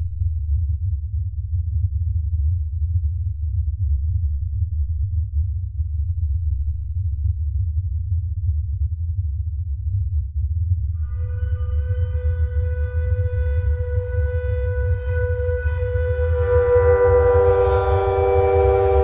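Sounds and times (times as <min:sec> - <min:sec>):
deep low bass drone: 0:00.0 - 0:19.0.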